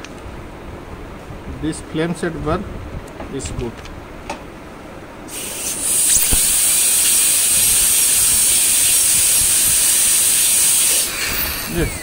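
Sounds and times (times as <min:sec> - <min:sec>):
dental drill whining and hissing: 0:05.3 - 0:12.0.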